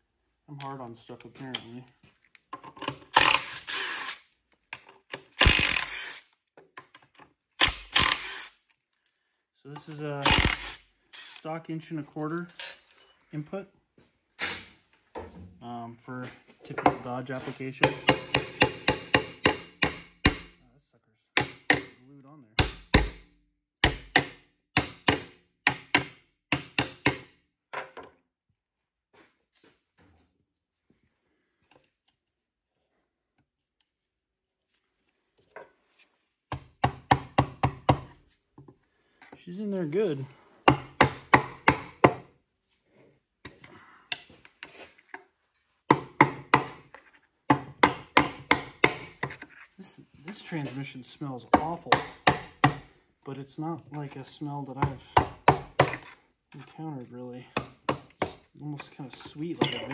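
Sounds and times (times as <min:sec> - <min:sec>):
tools clinking and scraping: 0:12.3 - 0:13.4, 0:14.4 - 0:14.9, 0:58.7 - 0:59.9
metal tool strikes on metal: 0:59.6 - 0:59.9.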